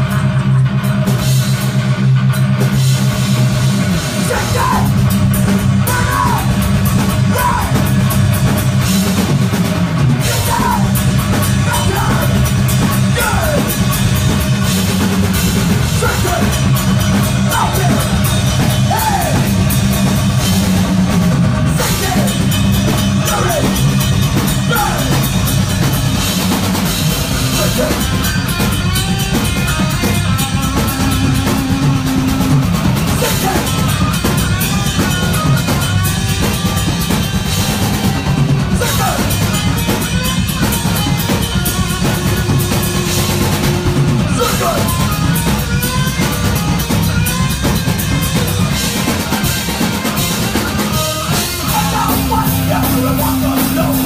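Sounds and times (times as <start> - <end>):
bass guitar: 0.0 - 54.0
distorted electric guitars: 0.0 - 54.0
pounding drum kit: 0.0 - 54.0
vocals at microphone: 4.2 - 5.0, 5.8 - 6.6, 7.2 - 7.9, 10.2 - 13.9, 15.8 - 19.5, 21.7 - 22.5, 23.1 - 23.9, 24.6 - 25.4, 30.8 - 33.9, 38.7 - 39.4, 42.5 - 45.1, 51.6 - 54.0.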